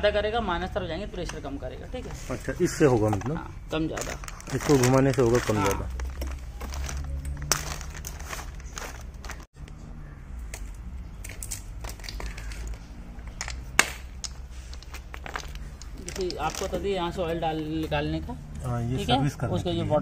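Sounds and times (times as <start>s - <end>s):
plastic packaging crinkling: 2.6s - 9.5s, 14.7s - 16.9s.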